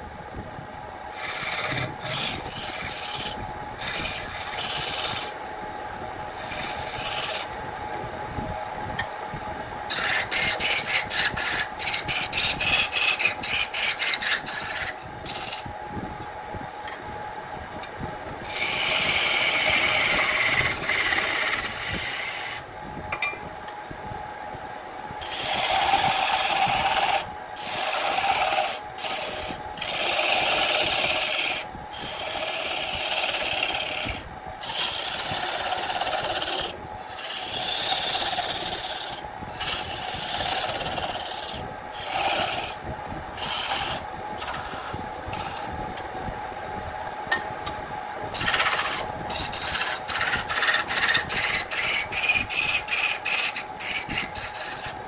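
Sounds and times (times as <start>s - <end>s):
lathe humming: 1.0s - 23.8s, 25.1s - 46.1s, 47.1s - 55.0s
turning tool cutting wood: 1.1s - 5.4s, 6.4s - 7.5s, 9.9s - 15.6s, 18.4s - 22.6s, 25.2s - 45.8s, 48.4s - 55.0s.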